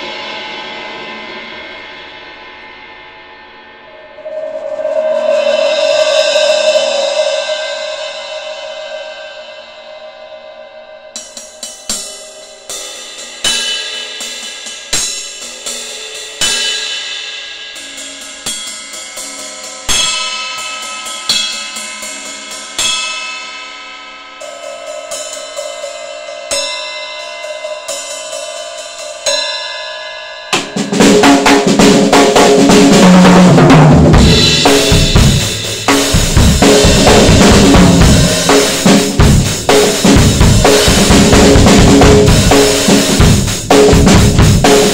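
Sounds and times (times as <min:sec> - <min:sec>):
full drum kit playing: 0:11.0 - 0:20.4, 0:30.5 - 0:44.9.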